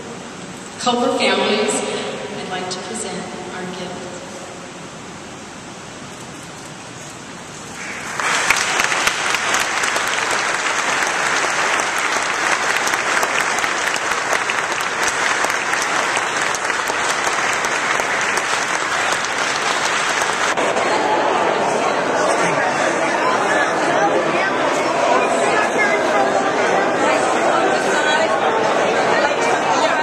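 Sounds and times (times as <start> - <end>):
audience applauding: 7.7 - 30.0.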